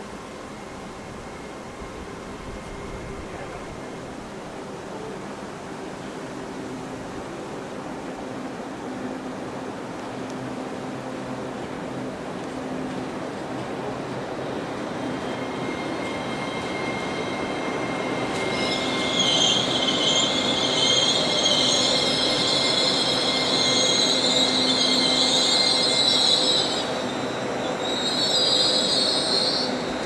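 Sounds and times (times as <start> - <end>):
train rumbling past: 0.0 - 30.0
train wheels squealing on rails: 0.1 - 5.3, 10.1 - 30.0.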